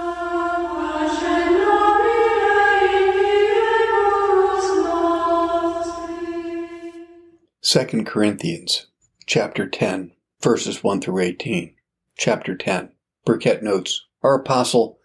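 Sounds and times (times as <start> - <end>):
choir singing unaccompanied: 0.0 - 7.4.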